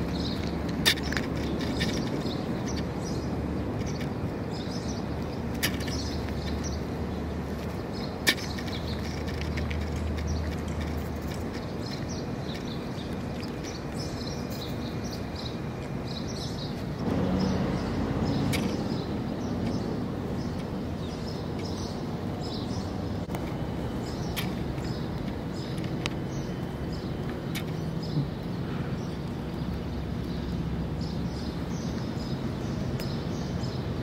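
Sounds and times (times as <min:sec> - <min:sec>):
low background hum: 0:00.0 - 0:34.0.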